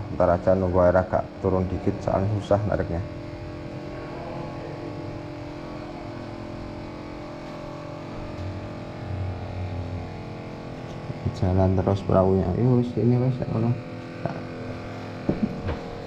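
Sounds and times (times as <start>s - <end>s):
deep drone: 0.0s - 16.0s.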